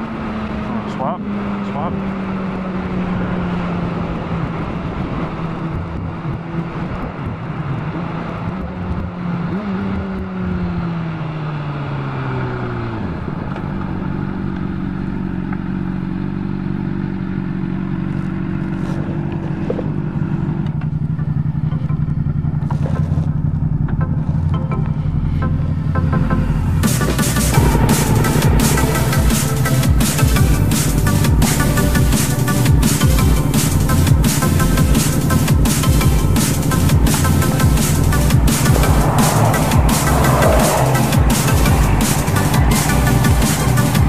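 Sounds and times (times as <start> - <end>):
motorcycle engine: 0.0 - 44.0
wind rush: 27.5 - 31.8, 36.1 - 43.8.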